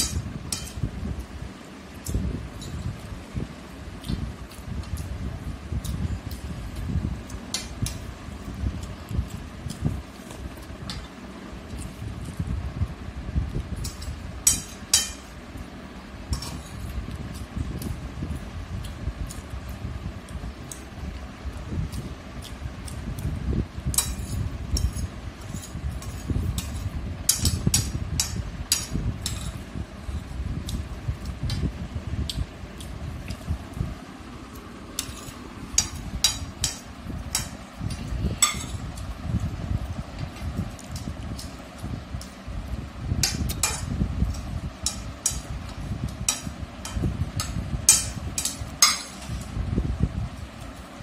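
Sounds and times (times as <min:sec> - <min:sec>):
steady low hum: 0:00.0 - 0:51.0.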